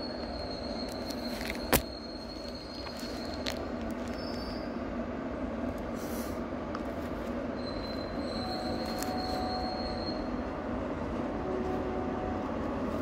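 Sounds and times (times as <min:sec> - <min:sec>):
high wheel squeal: 0:00.0 - 0:04.8, 0:07.5 - 0:10.6
freight train rumbling: 0:00.0 - 0:13.0.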